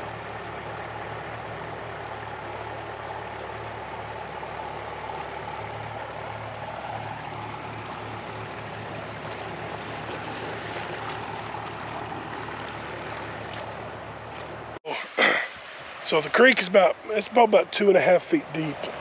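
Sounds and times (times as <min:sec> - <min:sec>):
tractor engine running: 0:00.0 - 0:14.8
floodwater rushing: 0:00.0 - 0:19.0.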